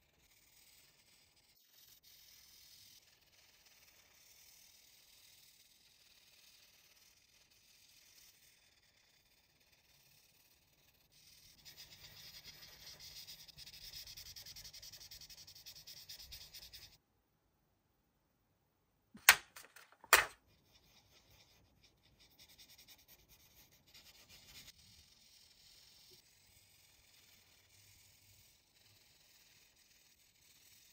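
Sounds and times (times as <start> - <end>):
marker rubbing on paper: 0.0 - 17.0, 20.1 - 30.9.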